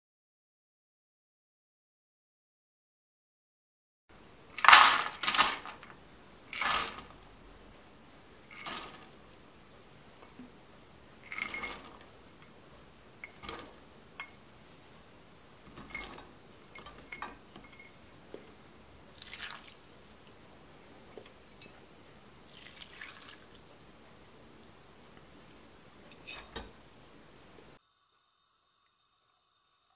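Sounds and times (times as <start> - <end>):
juice pouring splash: 19.1 - 20.0, 22.5 - 23.7.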